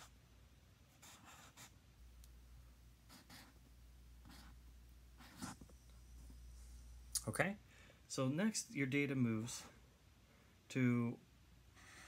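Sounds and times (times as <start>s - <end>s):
marker scratching on paper: 0.9s - 1.8s, 3.1s - 3.6s, 4.2s - 4.6s, 5.2s - 5.7s, 11.8s - 12.0s.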